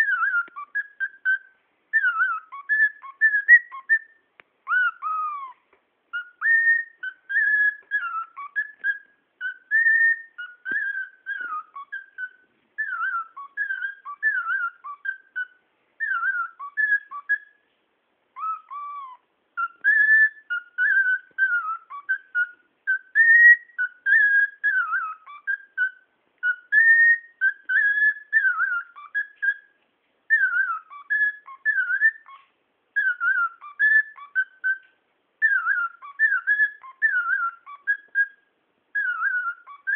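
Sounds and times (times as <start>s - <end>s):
cockatiel whistling: 0.0s - 17.7s, 18.4s - 39.9s.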